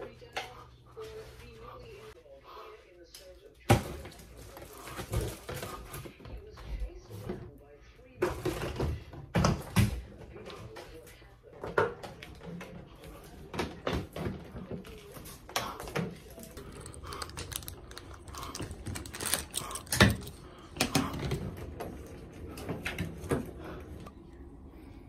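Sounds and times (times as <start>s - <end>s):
suitcase and hanger clicking: 16.6s - 21.2s.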